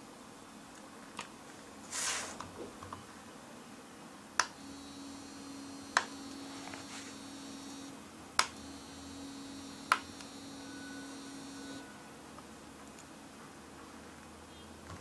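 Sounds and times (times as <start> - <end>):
steady low hum: 4.4 - 12.2.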